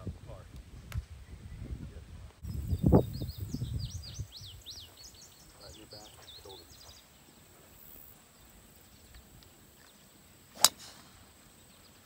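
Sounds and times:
faint outdoor background: 0.0 - 12.0
golf club striking ball: 10.6 - 11.3.

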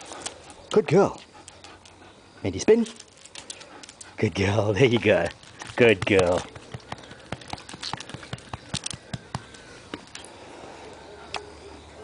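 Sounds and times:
dog claws clicking on asphalt: 2.7 - 10.3.

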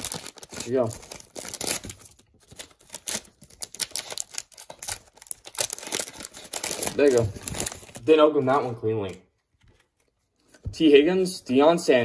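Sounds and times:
foil wrapper crinkling and tearing: 0.0 - 8.2.

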